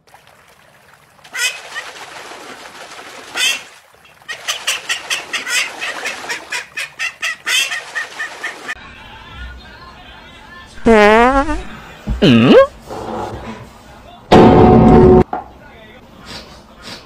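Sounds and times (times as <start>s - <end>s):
duck quacking: 4.3s - 8.8s.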